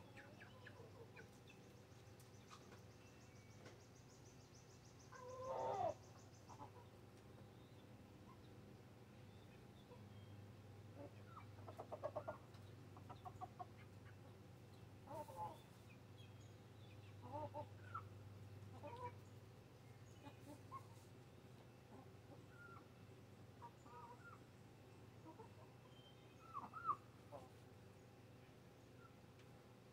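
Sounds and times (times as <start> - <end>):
chickens clucking: 0.0 - 2.9, 5.0 - 7.4, 10.8 - 19.4, 20.1 - 27.8
low steady hum: 0.0 - 29.9.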